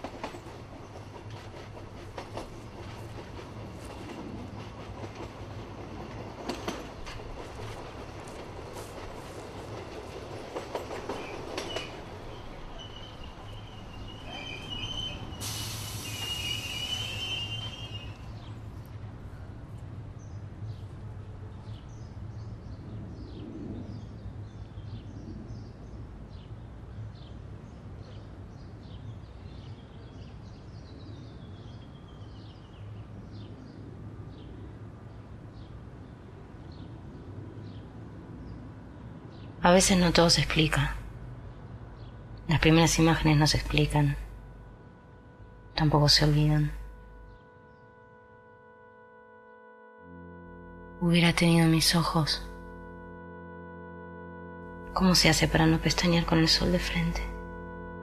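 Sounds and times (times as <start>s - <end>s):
train running on rails: 0.0s - 58.0s
loud burst of hiss: 15.4s - 17.5s.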